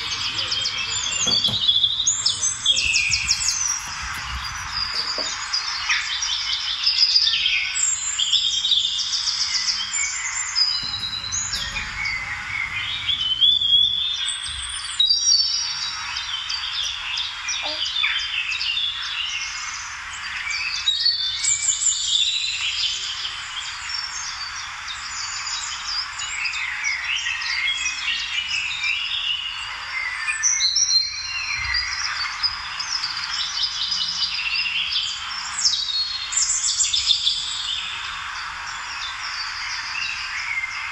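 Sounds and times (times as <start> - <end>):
birds chirping and singing: 0.0 - 5.8.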